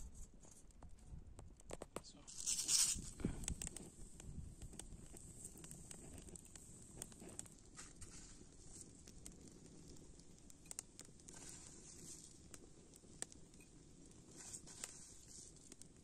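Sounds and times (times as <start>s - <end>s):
campfire crackling: 0.2s - 16.0s
sharp pops of fire: 0.5s - 16.0s.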